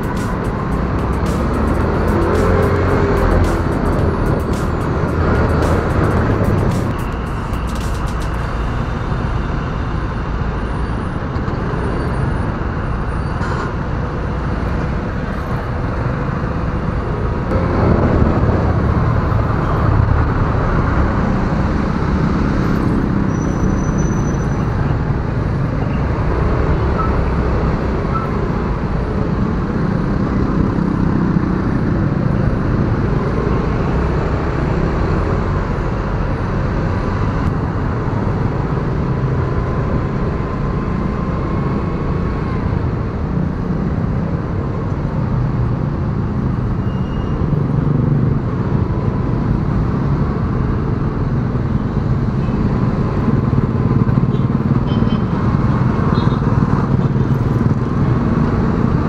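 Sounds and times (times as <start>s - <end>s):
motorcycle engines running: 51.4s - 59.0s.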